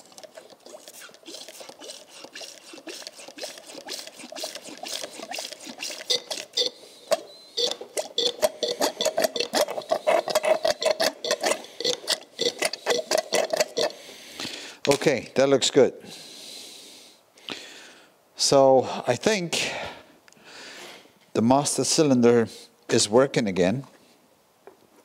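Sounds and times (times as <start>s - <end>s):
fluid squirting and gurgling: 0.0s - 14.0s.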